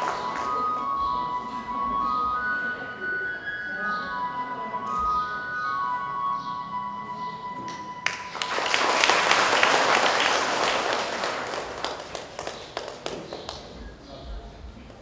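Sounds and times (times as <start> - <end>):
audience applauding: 0.0 - 0.8, 8.0 - 13.8.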